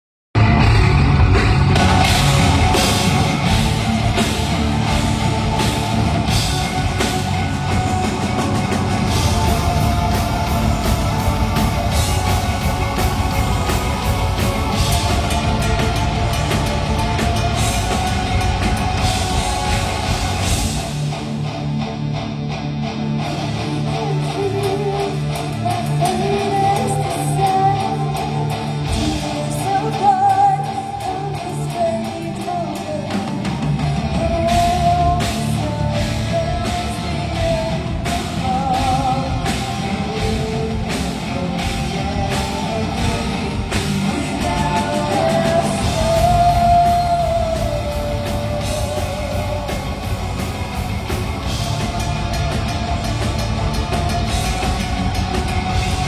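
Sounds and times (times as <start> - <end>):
drum fill: 0.4 - 21.1
heavy metal band playing: 0.4 - 56.0
person singing: 1.7 - 21.1, 23.4 - 56.0.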